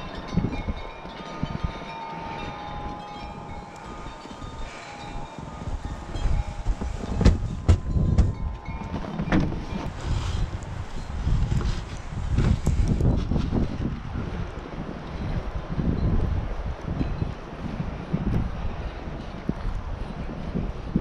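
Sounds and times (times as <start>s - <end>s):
faint bell-like ringing: 0.0s - 12.1s
wind buffeting microphone: 0.0s - 21.0s
footsteps crunching through snow: 3.2s - 9.0s.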